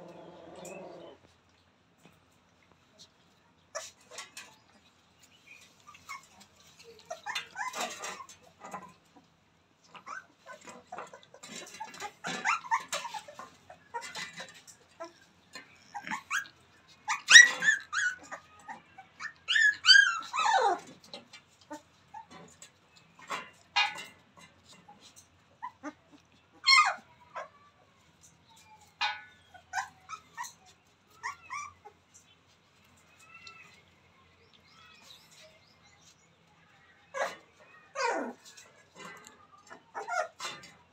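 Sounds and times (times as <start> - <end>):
puppies whimpering and yelping: 0.0 - 1.3, 3.7 - 23.6, 24.6 - 33.9, 37.1 - 40.9
soft rustling: 29.9 - 37.6.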